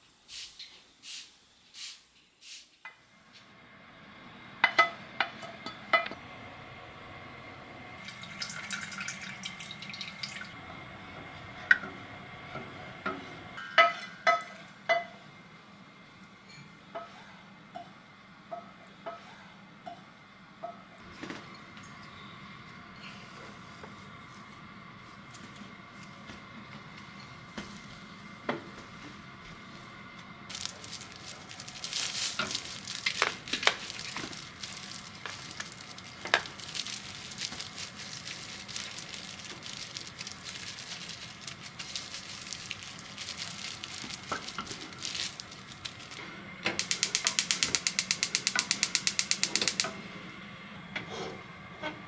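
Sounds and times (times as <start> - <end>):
rapid mechanical clicks: 46.8 - 49.9.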